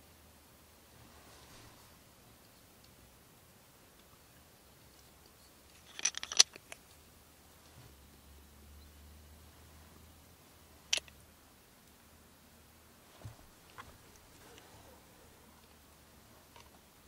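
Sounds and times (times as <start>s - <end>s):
spice jar clicking and rattling: 5.8s - 6.8s.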